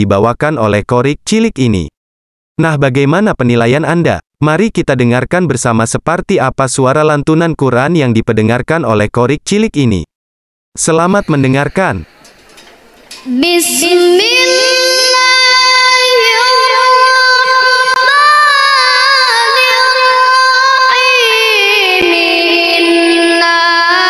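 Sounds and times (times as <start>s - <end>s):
boy reciting in melodic chant: 13.2s - 24.0s.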